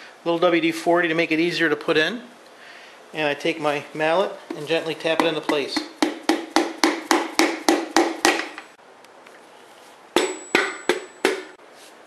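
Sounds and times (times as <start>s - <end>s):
mallet handle tapping piston: 4.5s - 8.7s, 10.2s - 11.6s.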